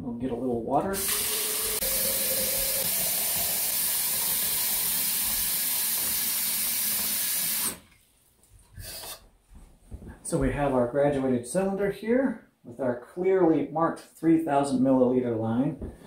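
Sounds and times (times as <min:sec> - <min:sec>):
tap water running into jar of ice: 0:01.0 - 0:07.8.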